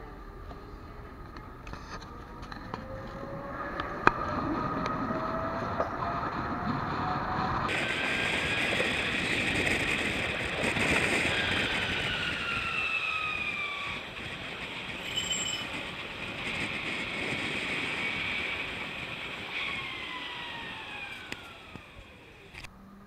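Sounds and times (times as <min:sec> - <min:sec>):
tram rolling rumble: 0:00.0 - 0:22.7
high squeal: 0:11.2 - 0:16.1.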